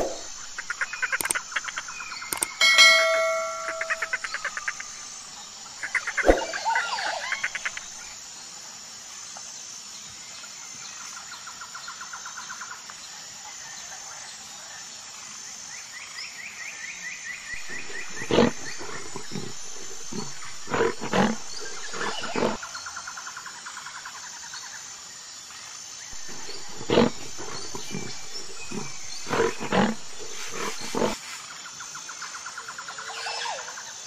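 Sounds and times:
high chirping and trills: 0.0s - 5.2s, 26.2s - 31.2s
lionesses grunting and moaning: 17.6s - 22.6s, 26.2s - 31.2s.

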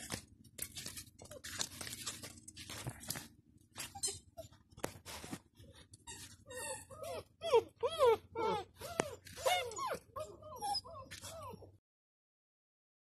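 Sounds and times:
puppies scuffling on concrete: 0.0s - 4.0s, 4.6s - 6.4s.

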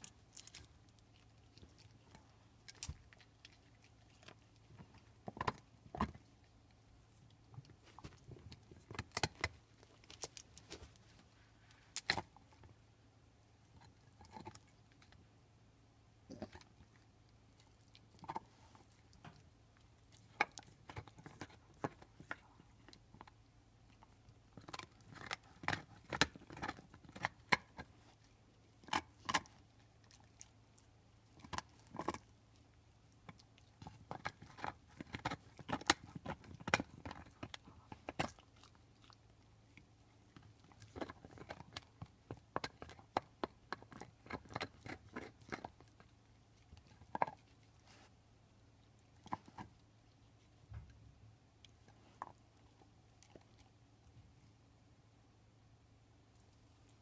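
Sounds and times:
dog teeth crunching bone: 0.0s - 6.8s, 7.6s - 10.9s, 11.9s - 12.7s, 13.7s - 15.2s, 16.3s - 48.1s, 48.8s - 50.3s.

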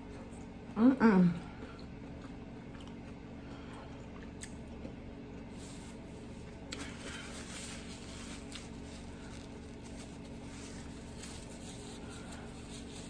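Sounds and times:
faint steady hum: 0.0s - 13.0s
person chewing: 1.6s - 5.5s.

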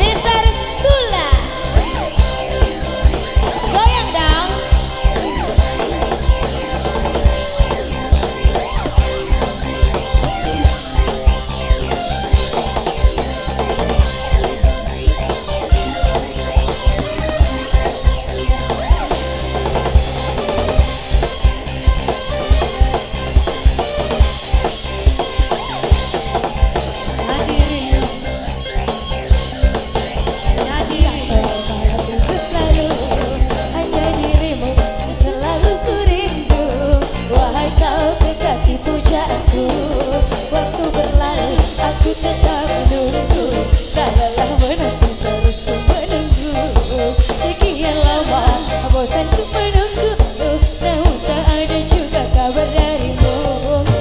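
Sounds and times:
woman singing: 0.0s - 1.6s, 3.6s - 4.7s, 27.2s - 28.4s, 30.6s - 54.0s
live band playing: 0.0s - 54.0s.

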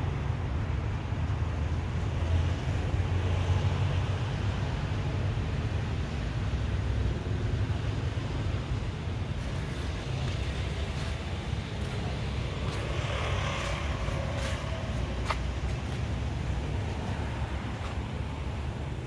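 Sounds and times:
low outdoor rumble: 4.0s - 19.0s.

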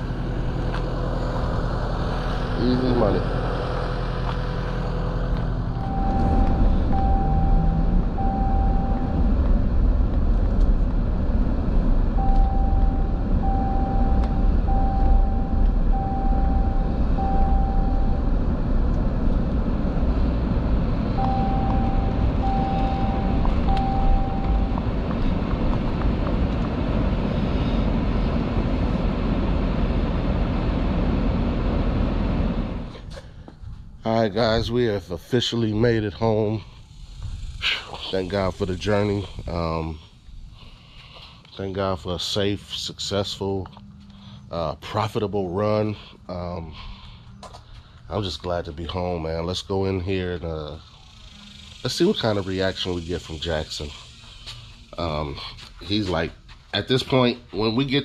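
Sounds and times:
vehicle engine and road rumble: 0.0s - 58.0s
electronic warning beeps: 5.7s - 9.4s, 12.2s - 18.3s, 21.1s - 25.4s.

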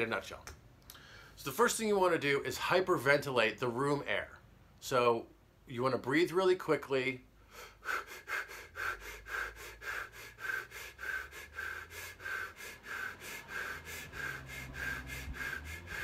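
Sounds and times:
man breathing quickly: 0.9s - 1.4s, 7.4s - 16.0s.

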